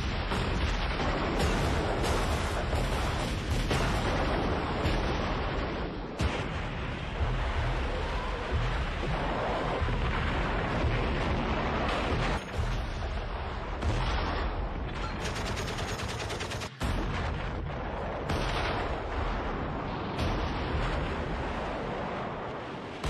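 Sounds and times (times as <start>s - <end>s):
continuous rumble: 0.0s - 23.0s
gunfire and blasts: 0.0s - 23.0s
machine-gun burst: 15.0s - 16.8s.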